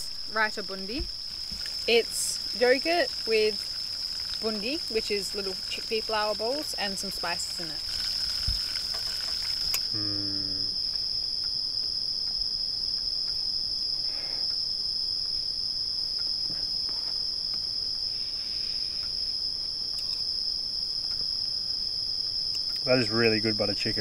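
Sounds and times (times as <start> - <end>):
night insects chirring: 0.0 - 24.0
brief low hum: 10.0 - 10.7.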